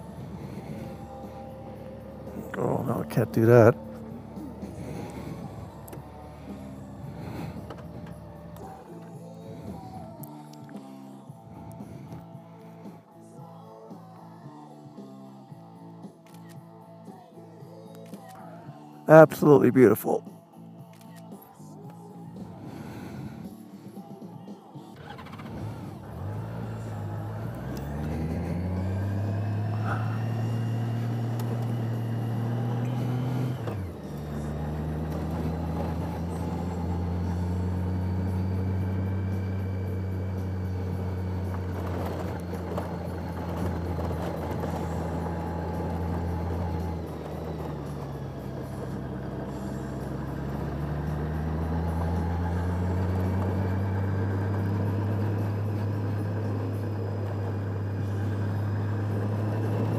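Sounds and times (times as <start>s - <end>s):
motorcycle engine accelerating: 0.0s - 12.8s, 24.8s - 59.9s.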